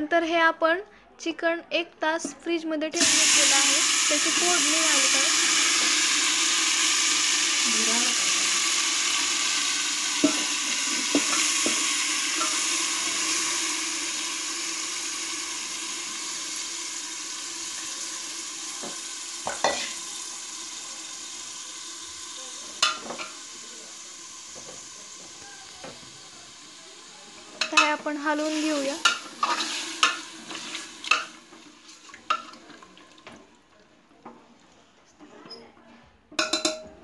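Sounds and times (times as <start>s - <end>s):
chicken sizzling in hot oil: 3.0s - 32.7s
sharp knocks against pot: 36.4s - 36.9s.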